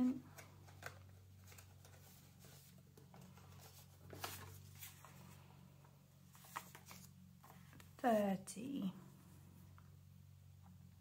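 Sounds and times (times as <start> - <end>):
low steady hum: 0.0 - 11.0
banknotes rustling and crinkling: 0.2 - 8.0.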